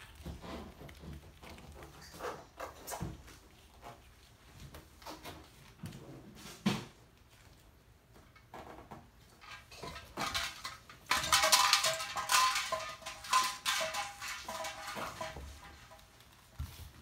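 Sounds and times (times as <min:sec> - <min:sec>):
plastic toys clattering: 0:00.0 - 0:03.4, 0:08.4 - 0:16.5.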